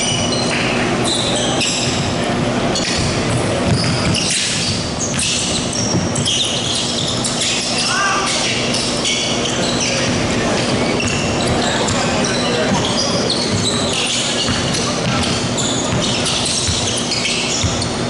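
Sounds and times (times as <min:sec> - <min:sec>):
sneakers squeaking on gym floor: 0:00.0 - 0:18.0
basketball bouncing: 0:02.8 - 0:06.4, 0:11.0 - 0:12.1, 0:12.7 - 0:17.9.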